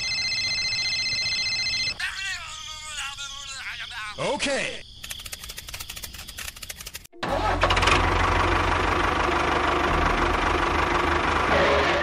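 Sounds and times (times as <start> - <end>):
rapid clicking: 5.0 - 7.1
tractor engine running: 6.5 - 12.0.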